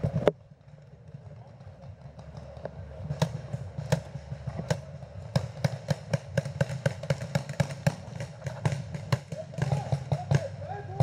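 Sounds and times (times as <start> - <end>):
paintball markers firing: 3.9 - 11.0.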